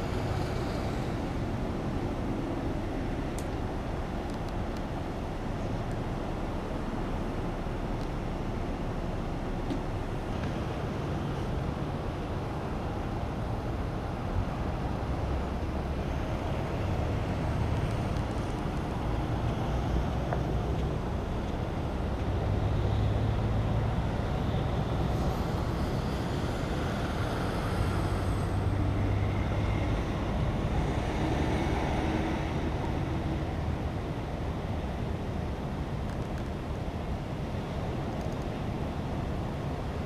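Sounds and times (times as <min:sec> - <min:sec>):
highway traffic passing: 0:00.0 - 0:40.0.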